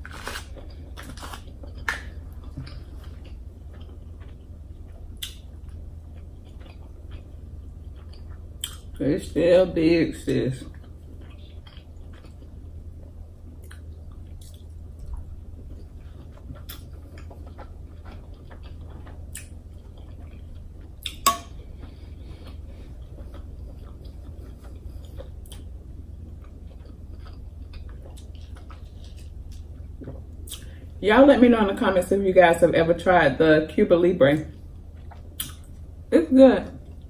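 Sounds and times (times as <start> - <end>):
chewing crab meat: 0.0 - 9.0, 10.2 - 30.8
wet mouth clicks and smacks: 8.6 - 8.8, 35.1 - 35.7.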